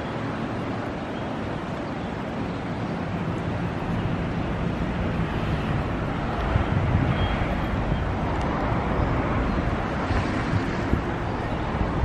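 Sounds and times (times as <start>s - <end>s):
wind rumble on microphone: 0.0s - 12.0s
cars driving past: 3.1s - 12.0s.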